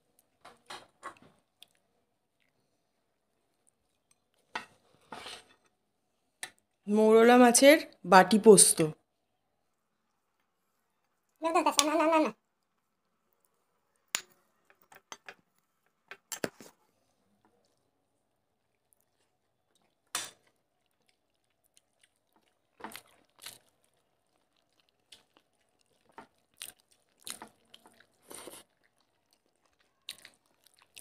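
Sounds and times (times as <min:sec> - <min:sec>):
wet chewing sounds: 0:00.0 - 0:04.9, 0:18.5 - 0:31.0.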